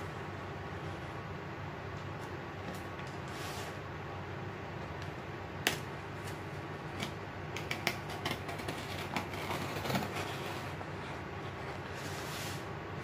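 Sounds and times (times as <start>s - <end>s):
electric fan running: 0.0s - 13.0s
handling cardboard parcel: 6.1s - 13.0s
small clicks and scrapes: 7.0s - 12.2s.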